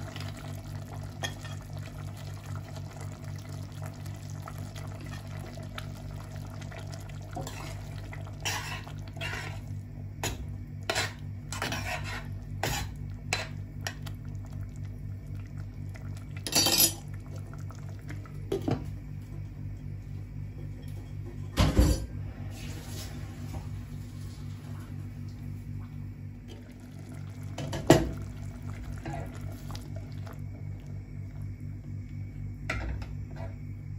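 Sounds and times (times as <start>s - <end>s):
steady low hum: 0.0s - 33.9s
metal spoon scraping a pot: 10.9s - 13.5s.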